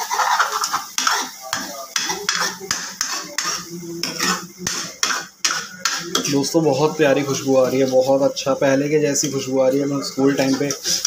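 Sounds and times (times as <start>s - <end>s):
metal ladle scraping a pan: 0.0s - 6.5s, 10.3s - 11.0s.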